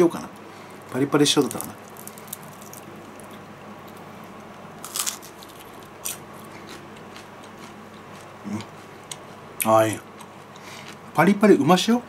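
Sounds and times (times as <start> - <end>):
crunching bites of fried chicken: 1.4 - 3.4, 4.8 - 9.2.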